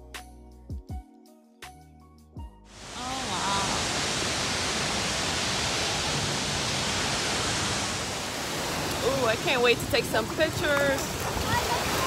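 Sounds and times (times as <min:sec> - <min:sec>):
falling splashing water: 0:02.8 - 0:12.0.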